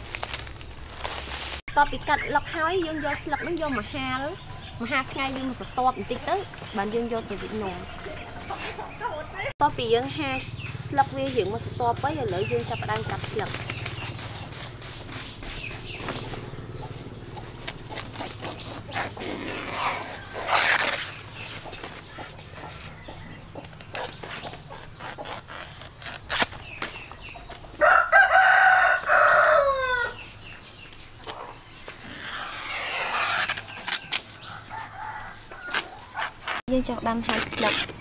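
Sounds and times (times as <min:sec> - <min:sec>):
leaves rustling and tearing: 0:00.0 - 0:01.7, 0:12.3 - 0:22.0, 0:23.6 - 0:38.0
rooster crowing: 0:27.8 - 0:30.2, 0:34.5 - 0:36.2.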